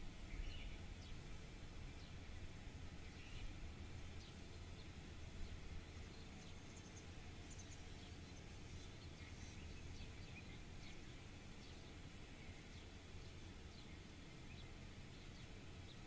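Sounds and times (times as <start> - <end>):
steady low rumble: 0.0 - 16.0
bird chirps: 0.2 - 2.4, 3.0 - 3.6.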